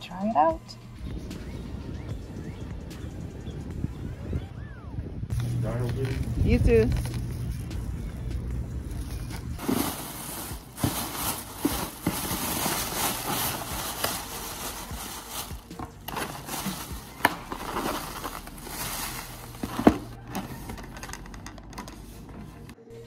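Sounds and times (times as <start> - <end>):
plastic bag rustling: 9.0 - 22.7.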